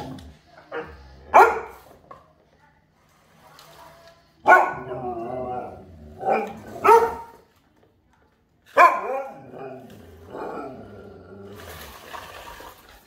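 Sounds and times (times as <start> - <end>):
dogs barking: 0.7 - 1.9, 4.4 - 7.4, 8.8 - 9.8.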